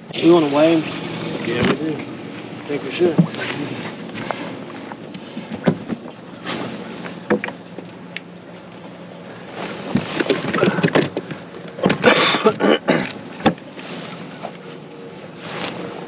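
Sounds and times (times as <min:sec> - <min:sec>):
faint steady hum: 0:00.0 - 0:16.0
fishing gear knocking and rustling: 0:03.1 - 0:12.1.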